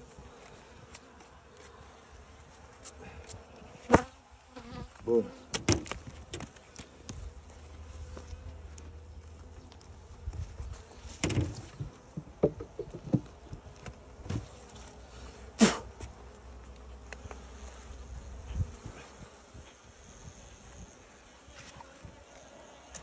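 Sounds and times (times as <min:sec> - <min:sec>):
honeybees buzzing: 0:00.0 - 0:23.0
knocks from hive handling: 0:05.5 - 0:06.5, 0:11.2 - 0:14.5.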